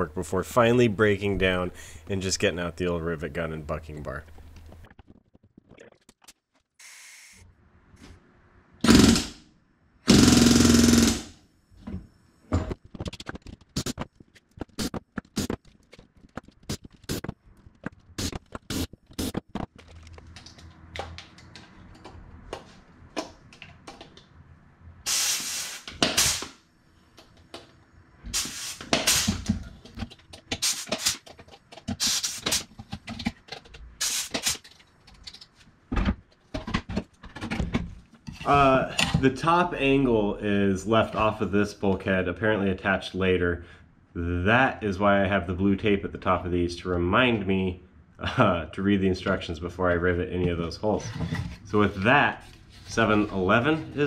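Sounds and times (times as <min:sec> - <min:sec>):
pneumatic rivet gun bursts: 0:08.8 - 0:09.4, 0:10.1 - 0:11.3, 0:25.1 - 0:26.6, 0:28.3 - 0:29.4, 0:30.6 - 0:31.2, 0:32.0 - 0:32.6, 0:34.0 - 0:34.6.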